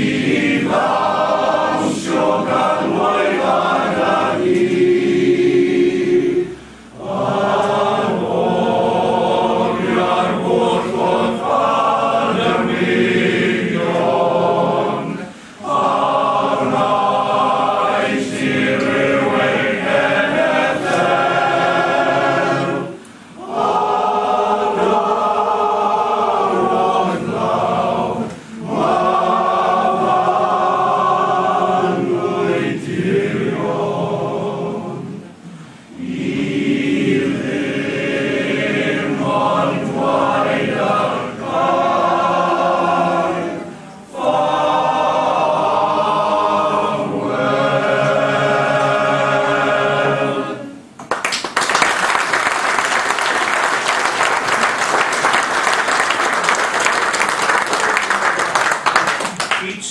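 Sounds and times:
male choir singing: 0.0s - 50.9s
audience applause: 51.0s - 59.8s.

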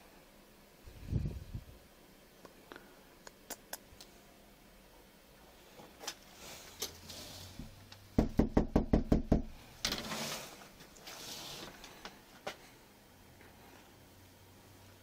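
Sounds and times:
fist knocking on door: 8.2s - 9.5s
rustling: 9.8s - 12.7s.

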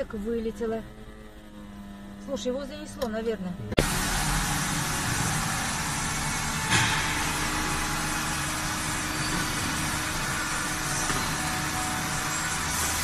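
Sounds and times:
road traffic rumble: 0.0s - 13.0s
car collision impact: 6.6s - 8.0s.

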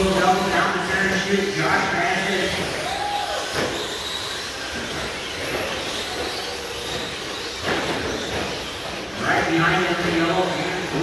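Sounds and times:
rc truck motors and tyres: 0.0s - 11.0s.

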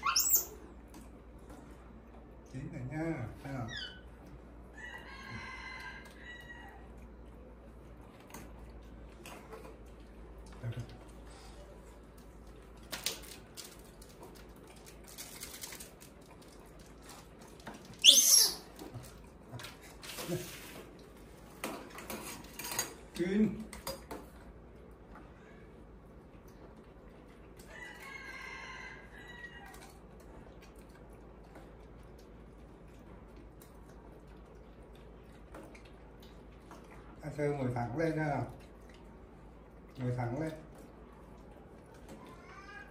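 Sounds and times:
monkey squeal: 0.0s - 0.5s, 3.7s - 4.0s, 18.0s - 18.7s
clicks and rustles in metal bowl: 12.0s - 25.3s.

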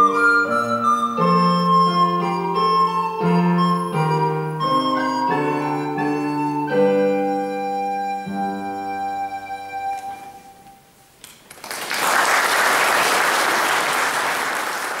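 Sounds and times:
audience applauding: 11.4s - 15.0s.

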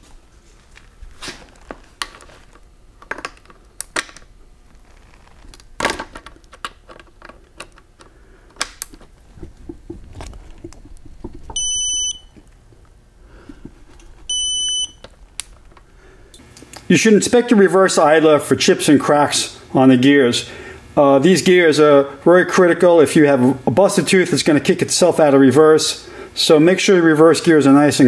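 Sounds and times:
electronic beep: 11.5s - 12.3s, 14.3s - 15.0s.

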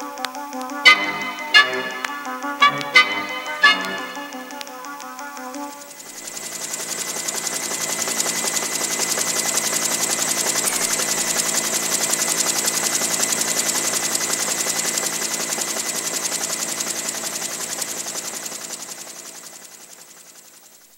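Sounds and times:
faint steady high tone: 0.9s - 4.7s.

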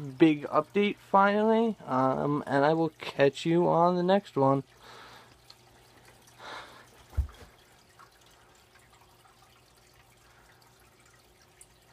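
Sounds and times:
aquarium water trickling and dripping: 0.0s - 11.9s
soft rush of water: 4.4s - 11.9s.

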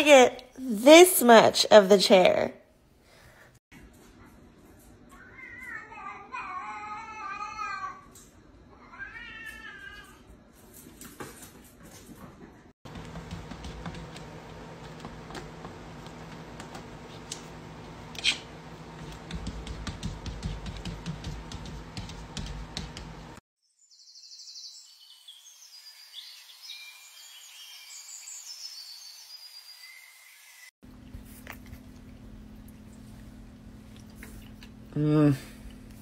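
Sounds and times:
cat paw tapping on window: 19.2s - 23.3s.

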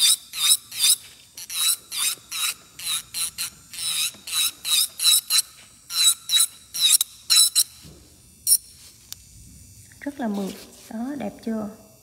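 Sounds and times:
nail drill filing: 0.0s - 9.3s.

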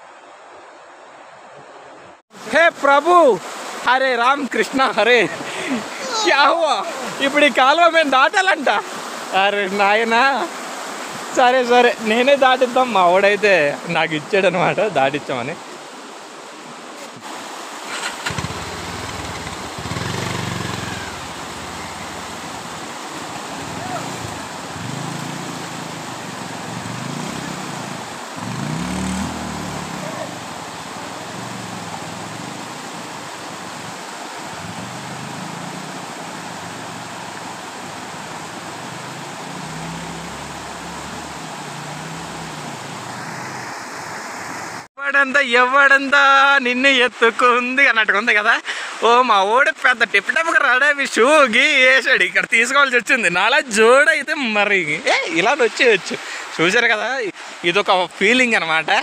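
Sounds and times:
stream rushing: 0.0s - 59.0s
motorcycle engine revving: 17.9s - 43.5s.

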